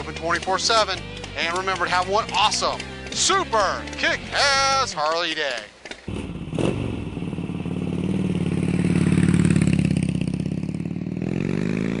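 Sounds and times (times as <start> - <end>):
motorcycle engine revving: 6.1 - 12.0.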